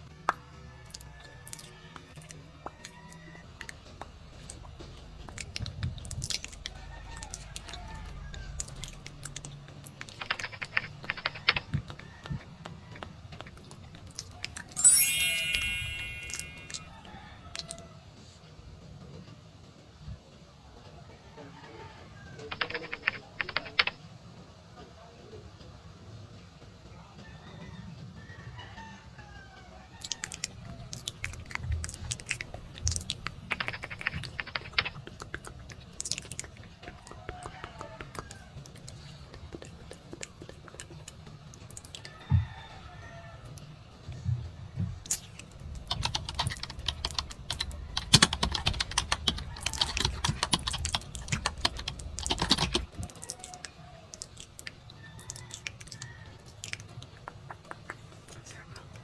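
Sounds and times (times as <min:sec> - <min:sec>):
keyboard typing: 0:00.9 - 0:16.9, 0:22.5 - 0:24.0, 0:30.1 - 0:41.8, 0:45.1 - 0:53.6
bright chime: 0:14.8 - 0:17.0.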